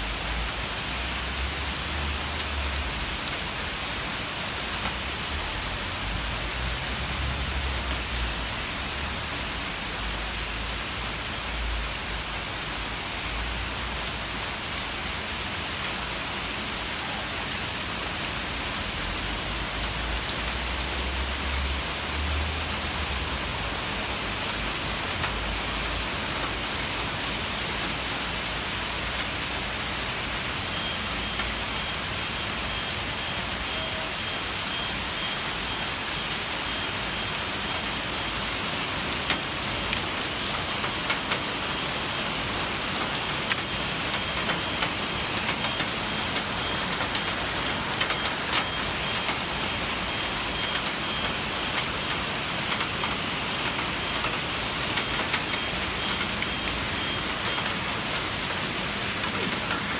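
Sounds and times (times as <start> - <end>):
heavy rain hiss: 0.0 - 59.9
hailstones ticking: 25.0 - 29.6, 39.1 - 59.9.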